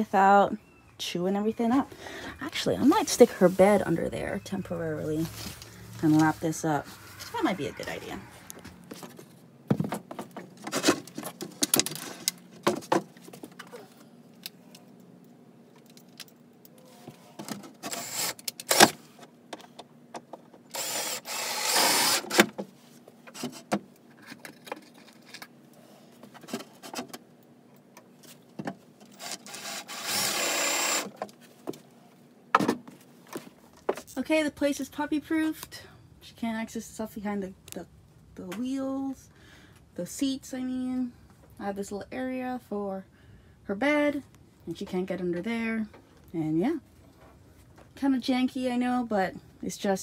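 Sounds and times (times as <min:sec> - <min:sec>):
knocks and clatter of wood and tools: 0:08.9 - 0:13.8, 0:32.5 - 0:34.1
cordless drill running: 0:17.9 - 0:18.8, 0:20.7 - 0:22.4, 0:29.2 - 0:31.1.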